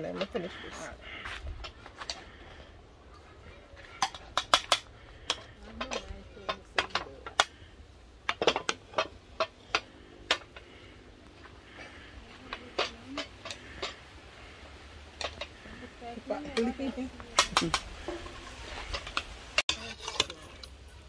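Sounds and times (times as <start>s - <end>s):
metal spoon clinking on pot: 19.7s - 21.0s.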